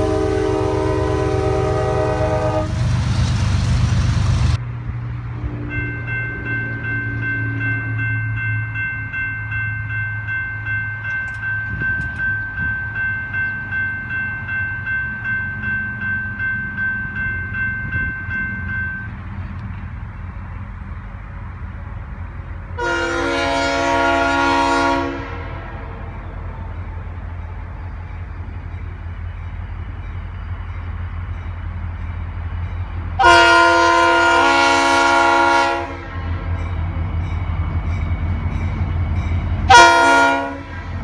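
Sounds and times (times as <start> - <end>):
locomotive air horn: 0.0 - 2.8, 22.8 - 25.8, 33.2 - 36.2, 39.7 - 41.0
locomotive engine running: 0.0 - 41.0
crossing warning bell ringing: 5.0 - 41.0.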